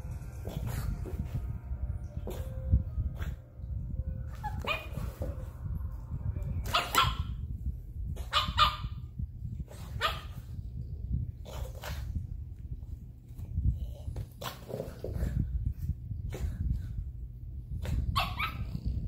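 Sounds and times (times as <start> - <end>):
low steady rumble: 0.0 - 19.0
dog barking: 4.4 - 5.2, 6.7 - 7.4, 8.2 - 9.0, 9.9 - 10.4, 18.1 - 18.8.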